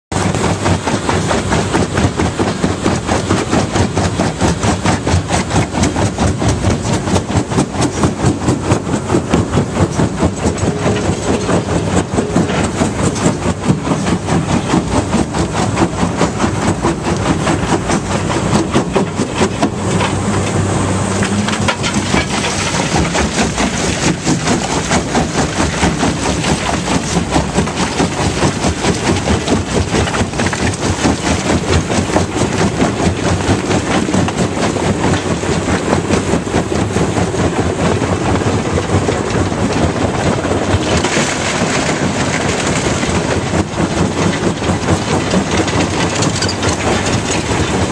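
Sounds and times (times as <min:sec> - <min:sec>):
engine drone: 0:00.1 - 0:47.9
rock clattering and cracking: 0:21.2 - 0:35.3, 0:38.8 - 0:47.9.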